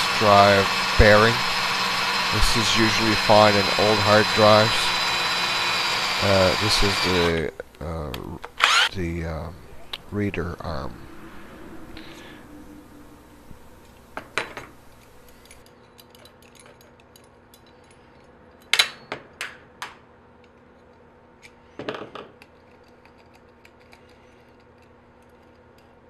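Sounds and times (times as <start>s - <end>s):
metal parts clinking on metal plate: 15.3s - 19.1s.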